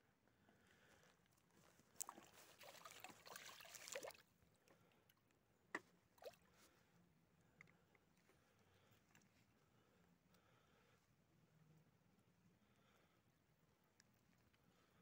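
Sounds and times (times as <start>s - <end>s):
water sloshing and trickling: 1.9s - 5.3s, 6.0s - 6.8s
short water splashes: 2.0s - 4.3s, 6.2s - 6.6s.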